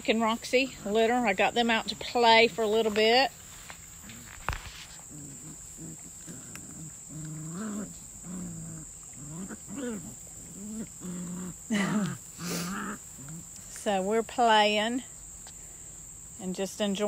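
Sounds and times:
puppies growling in play: 0:03.9 - 0:13.7.

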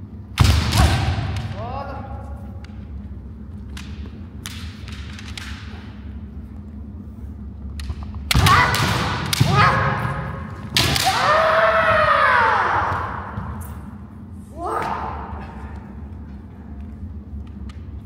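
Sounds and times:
bamboo swords striking: 0:00.4 - 0:01.6, 0:10.6 - 0:11.4
people shouting: 0:08.3 - 0:13.4.

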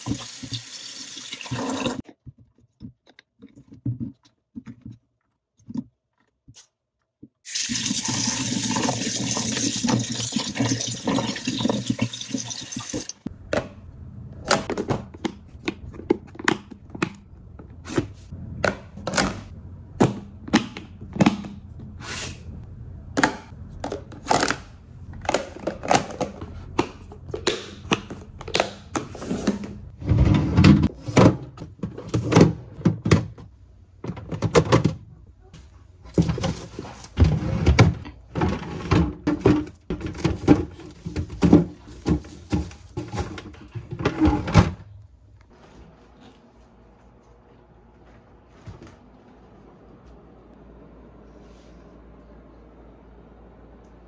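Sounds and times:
tap water running into sink: 0:00.0 - 0:02.0, 0:07.5 - 0:13.2
plastic containers clicking: 0:23.1 - 0:29.1.

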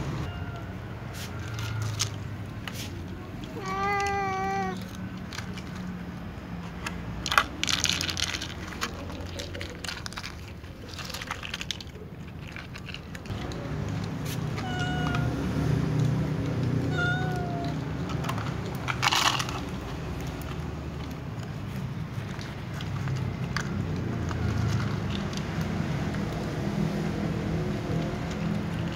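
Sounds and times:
cat meowing: 0:00.2 - 0:01.9, 0:03.5 - 0:04.9, 0:14.5 - 0:15.5, 0:16.8 - 0:17.8
rustling: 0:06.6 - 0:15.4.

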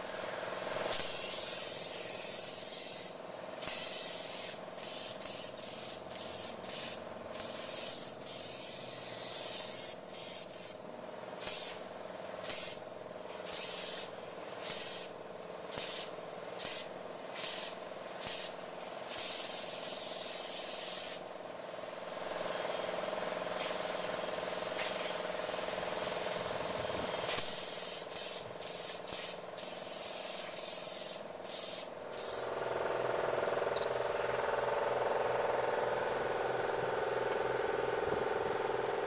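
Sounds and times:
spray gun hissing: 0:00.0 - 0:21.6, 0:22.2 - 0:32.9
machine hum: 0:32.5 - 0:39.0.

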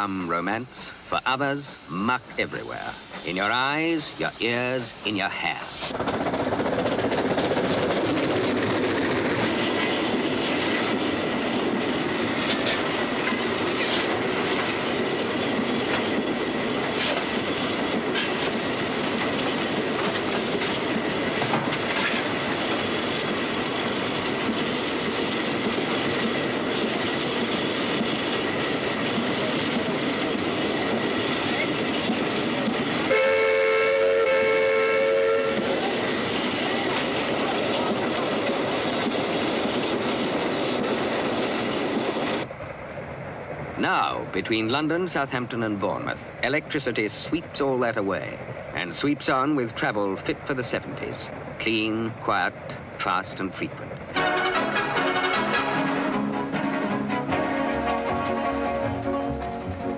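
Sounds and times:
steam train running: 0:00.0 - 0:59.9
wheels clicking over rail joints: 0:05.9 - 0:33.1
steam locomotive whistle: 0:33.1 - 0:35.9, 0:54.2 - 0:59.7.

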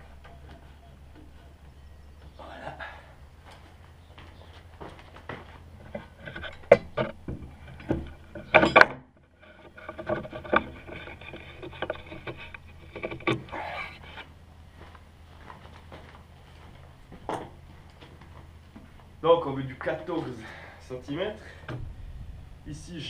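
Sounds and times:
wood scraping: 0:00.0 - 0:14.4.

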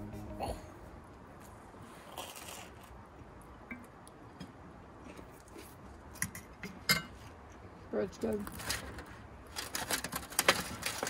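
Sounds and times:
people chewing: 0:01.8 - 0:06.2.

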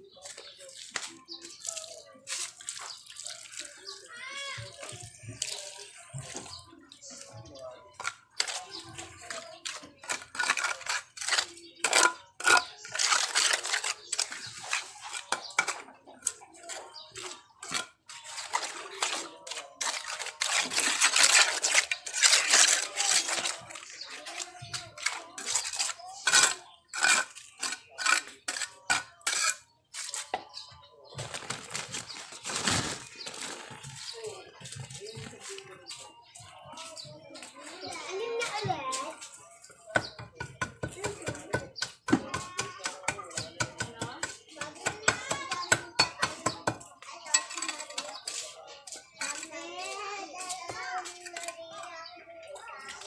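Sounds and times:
trowel scraping wet cement: 0:07.9 - 0:30.5, 0:37.9 - 0:52.0.

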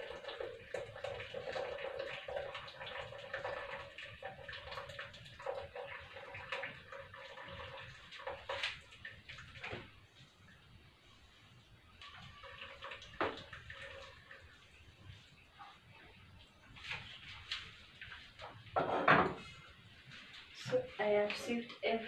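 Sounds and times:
liquid pouring and splashing into jug: 0:00.0 - 0:10.0, 0:12.0 - 0:15.2.

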